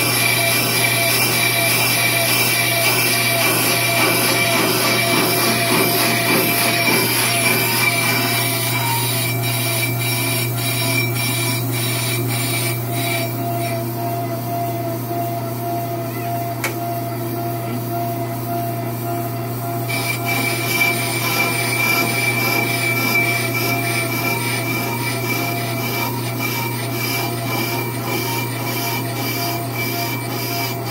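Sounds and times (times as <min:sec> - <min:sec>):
motor hum and whine: 0:00.0 - 0:30.9
cutting bits scraping brake rotor: 0:00.1 - 0:13.7, 0:19.9 - 0:30.9.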